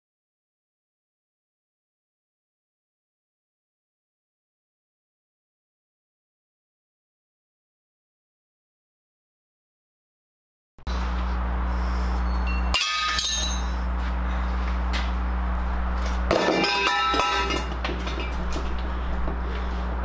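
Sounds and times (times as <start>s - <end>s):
steady low hum: 10.9s - 20.0s
metal pipes clanking on asphalt: 12.2s - 15.1s, 16.0s - 19.7s.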